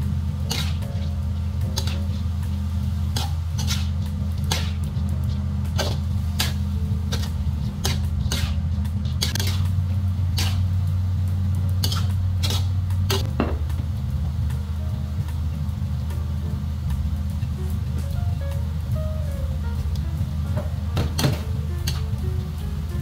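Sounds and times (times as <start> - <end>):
low hum: 0.0 - 23.0
spatula scraping metal wok: 0.4 - 10.7, 11.8 - 13.3.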